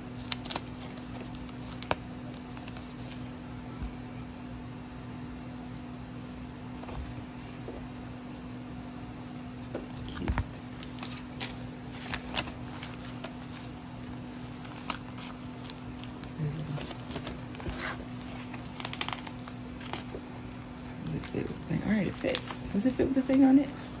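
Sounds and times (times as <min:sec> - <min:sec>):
photo cards and plastic sleeves rustling: 0:00.0 - 0:04.4, 0:09.2 - 0:23.8
steady low hum: 0:00.0 - 0:24.0.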